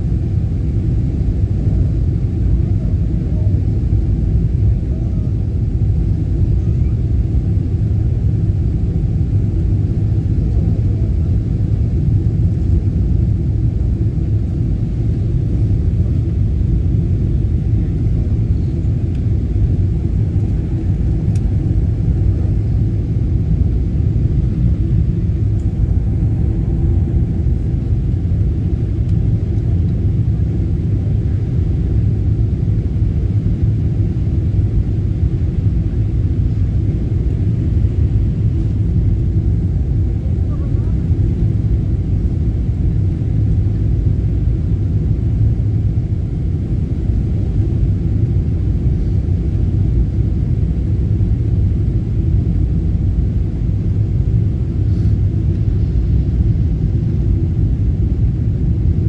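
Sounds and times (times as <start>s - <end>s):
airliner cabin rumble: 0.0s - 59.0s.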